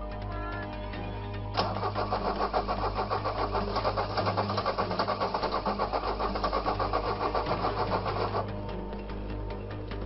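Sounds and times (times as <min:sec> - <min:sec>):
car starter cranking engine: 0:01.6 - 0:08.6.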